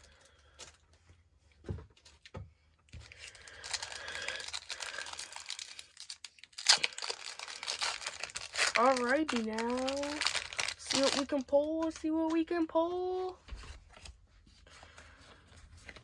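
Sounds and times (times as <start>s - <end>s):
foil wrapper crinkling and tearing: 2.9s - 12.5s.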